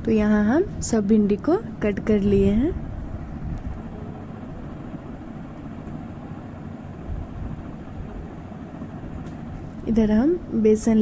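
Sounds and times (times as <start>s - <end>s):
steady low background rumble: 0.0s - 11.0s.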